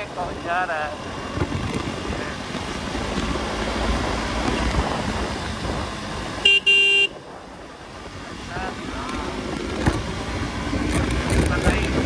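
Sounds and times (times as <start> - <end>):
motorcycle riding at speed: 0.0 - 12.0
wind noise: 0.0 - 12.0
vehicle horn beeping: 6.4 - 7.2.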